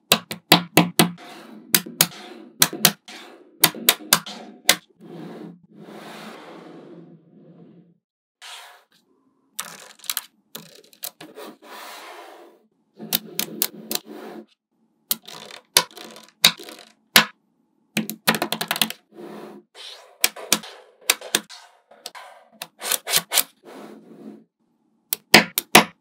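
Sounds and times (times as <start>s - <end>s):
magnetic balls clicking together: 15.1s - 17.3s.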